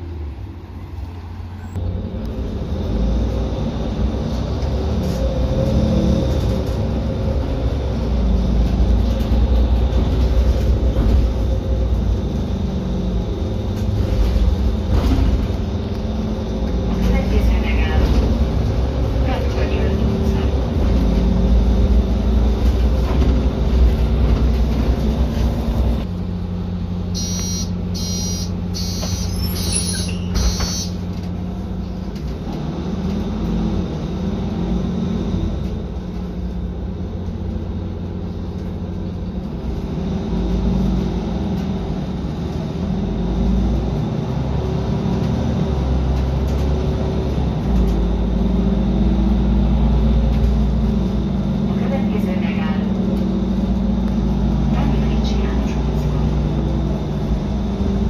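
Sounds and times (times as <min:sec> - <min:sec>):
bus diesel engine running: 0:00.0 - 0:58.0
short high-pitched electronic beeps: 0:27.2 - 0:31.0.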